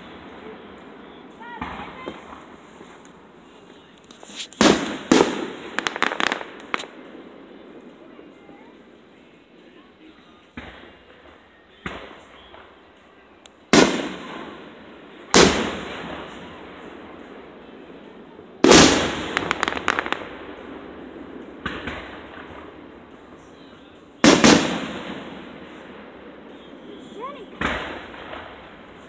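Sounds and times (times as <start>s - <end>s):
rapid firework crackling: 0.0s - 7.7s, 13.7s - 17.4s, 18.6s - 29.0s
faint firework reports: 0.0s - 29.0s
firework bangs: 0.0s - 29.0s.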